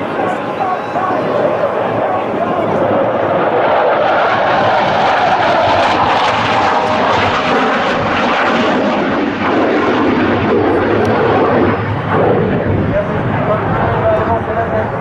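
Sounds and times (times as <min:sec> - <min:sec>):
fighter jet flying: 0:00.0 - 0:15.0.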